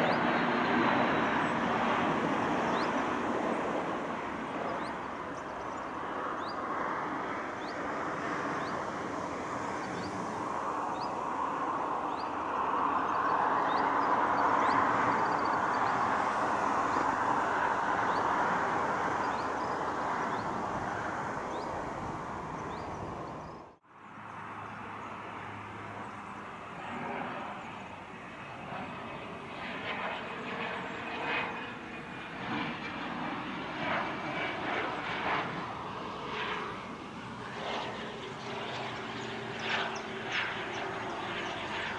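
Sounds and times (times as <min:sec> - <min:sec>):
distant jet with low hum: 0:00.0 - 0:41.9
jet engines roaring: 0:00.0 - 0:41.9.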